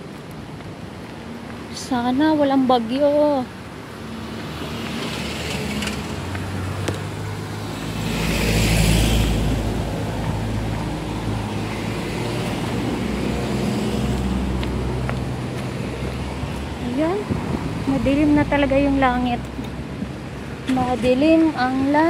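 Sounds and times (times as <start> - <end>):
car engines running: 2.6 - 22.0
vehicle passing close: 3.8 - 20.6.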